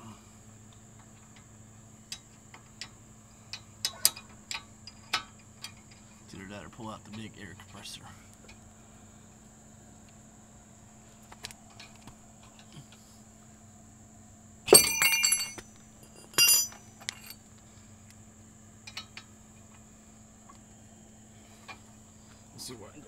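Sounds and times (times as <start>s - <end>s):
metal tools clinking: 14.7s - 17.4s.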